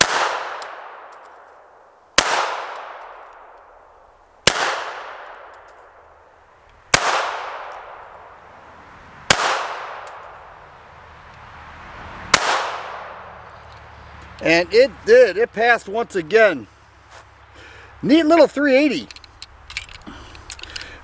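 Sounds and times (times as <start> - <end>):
pistol shots echoing: 0.0 - 1.3, 2.2 - 3.6, 4.4 - 5.7, 6.9 - 8.1, 9.3 - 10.3, 12.3 - 13.3.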